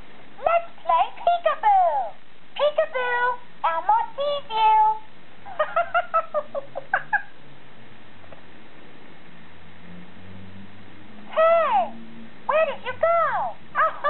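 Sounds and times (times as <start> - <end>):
faint low hum: 0.0 - 14.0
toy high-pitched voice speaking: 0.4 - 5.0, 12.5 - 14.0
toy giggling: 13.8 - 14.0.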